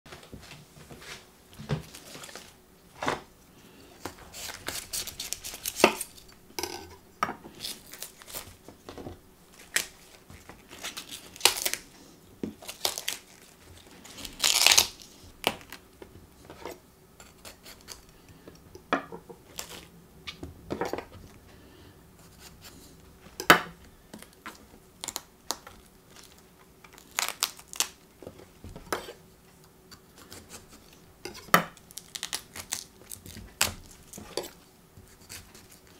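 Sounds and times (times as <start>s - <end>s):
cauliflower leaves snapping: 4.3s - 6.1s, 9.5s - 11.9s, 12.5s - 15.8s, 25.0s - 28.0s, 31.8s - 34.2s
leaves tearing from stem: 4.3s - 6.1s, 10.8s - 11.8s, 12.6s - 13.5s, 14.1s - 15.2s, 27.0s - 28.0s.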